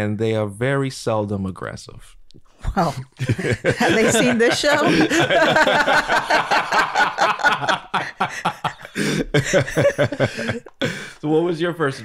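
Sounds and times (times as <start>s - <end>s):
people laughing: 3.1s - 11.2s.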